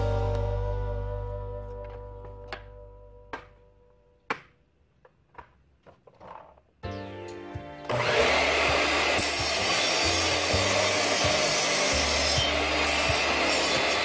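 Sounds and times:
miter saw motor whine: 0:07.9 - 0:14.0
saw blade cutting wood: 0:07.9 - 0:14.0.

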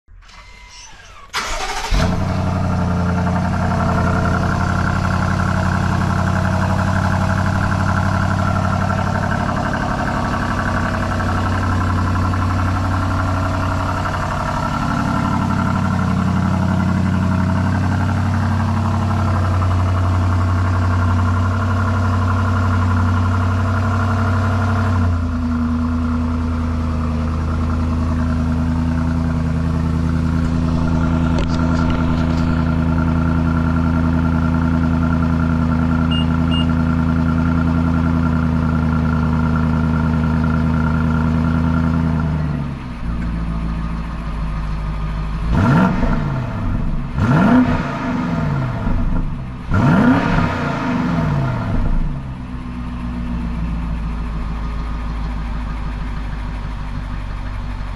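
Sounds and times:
quick throttle revs: 0:00.2 - 0:02.7
car exhaust fast idle: 0:00.2 - 0:57.9.

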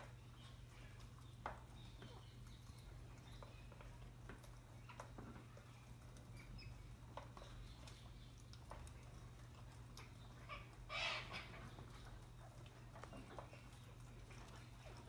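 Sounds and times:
faint clicks and taps: 0:00.0 - 0:10.5, 0:11.5 - 0:15.0
parrot squawk: 0:10.5 - 0:11.6.

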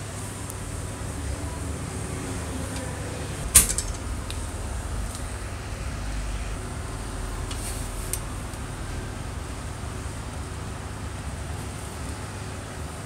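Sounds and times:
steady low rumble: 0:00.0 - 0:13.0
sharp metallic click: 0:03.6 - 0:04.4.

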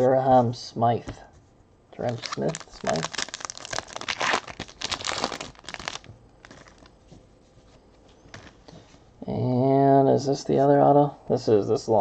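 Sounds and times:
foil wrapper tearing and crinkling: 0:02.0 - 0:06.9
cards being handled: 0:02.0 - 0:08.9.

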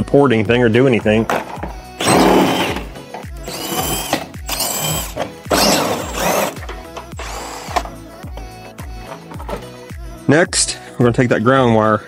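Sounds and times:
background music with beat: 0:00.0 - 0:12.0
cordless power driver spinning: 0:02.0 - 0:09.7.

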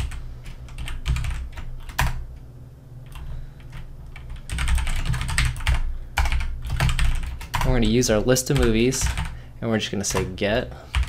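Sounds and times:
typing on a keyboard: 0:00.0 - 0:02.2, 0:03.1 - 0:07.7, 0:08.6 - 0:09.4.

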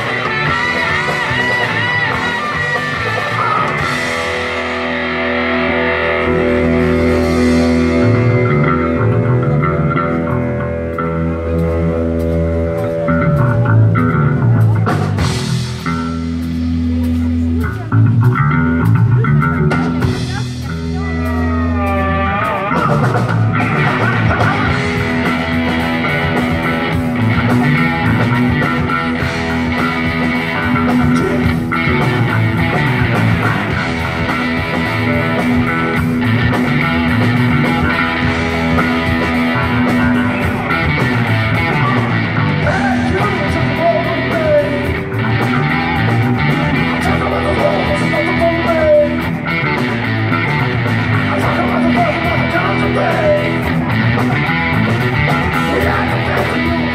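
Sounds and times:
guitar pitch slides: 0:00.0 - 0:17.4
live rock band playing: 0:00.0 - 0:56.9.

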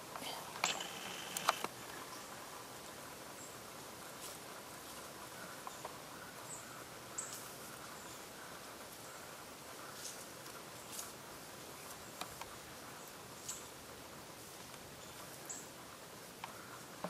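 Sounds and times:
faint steady hiss: 0:00.0 - 0:17.0
soft clicks: 0:00.2 - 0:01.7.

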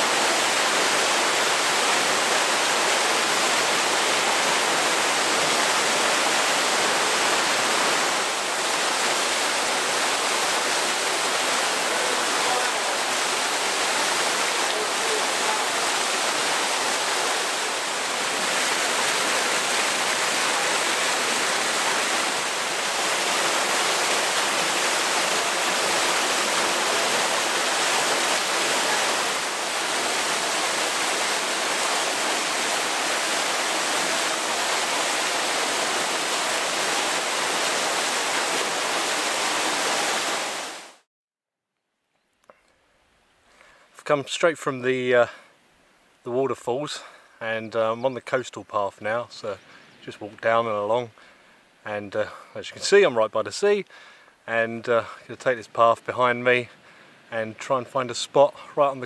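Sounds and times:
waterfall splashing into pool: 0:00.0 - 0:41.1.

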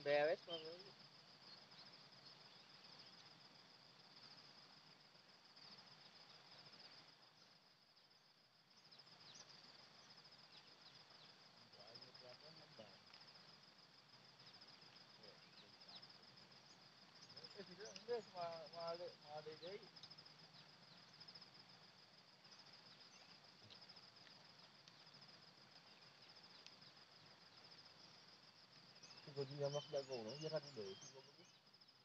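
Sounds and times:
high-pitched insect trill: 0:00.0 - 0:32.0
bird chirps: 0:28.9 - 0:31.8.

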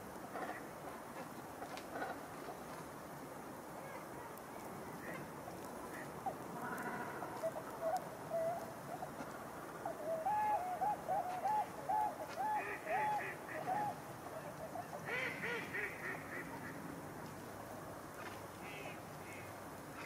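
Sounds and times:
ducks and swans calling: 0:05.0 - 0:17.0.

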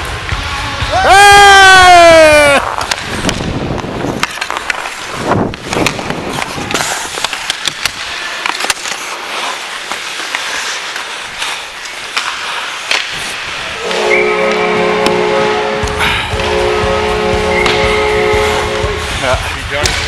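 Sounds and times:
skates scraping on ice: 0:02.0 - 0:20.0
hockey sticks and puck clicking: 0:02.3 - 0:15.2, 0:17.6 - 0:20.0
goal horn: 0:13.8 - 0:19.2.

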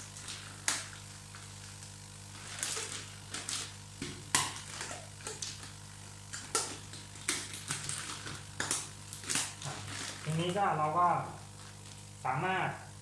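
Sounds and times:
plastic bag crinkling: 0:00.0 - 0:05.8, 0:06.4 - 0:10.7.

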